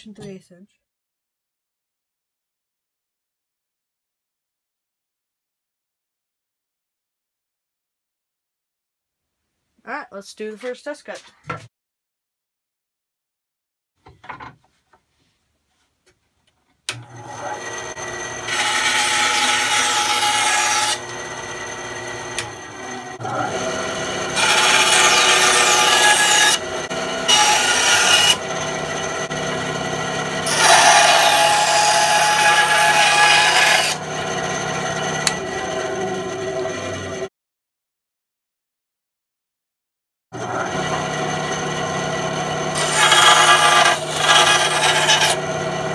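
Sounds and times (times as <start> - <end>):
bandsaw motor humming: 16.9 - 37.3, 40.4 - 45.9
bandsaw blade rasping through wood: 17.3 - 37.3, 42.6 - 45.9.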